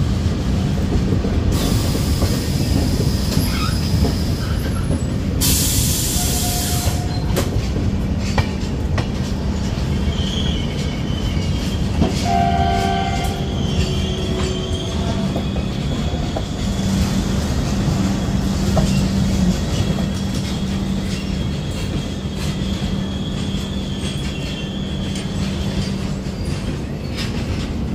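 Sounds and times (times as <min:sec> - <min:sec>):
train coach rumbling: 0:00.0 - 0:27.9
high squeal of wheels and brakes: 0:01.6 - 0:07.5, 0:09.7 - 0:16.8, 0:17.8 - 0:27.7
train horn: 0:06.1 - 0:07.1, 0:12.2 - 0:15.0.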